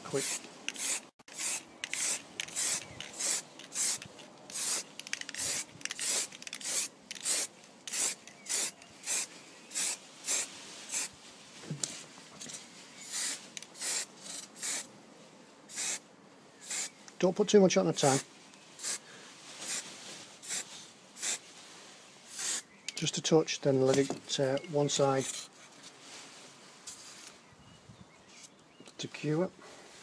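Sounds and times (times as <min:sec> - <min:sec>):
spray can hissing in short bursts: 0:00.1 - 0:11.1, 0:13.0 - 0:14.9, 0:15.7 - 0:16.0, 0:16.6 - 0:17.0, 0:18.8 - 0:19.0, 0:19.6 - 0:19.8, 0:20.4 - 0:21.4, 0:22.3 - 0:22.6.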